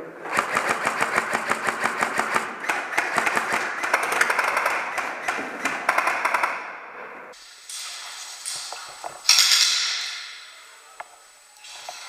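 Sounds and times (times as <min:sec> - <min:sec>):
airsoft rifle full-auto bursts: 0:00.2 - 0:06.6.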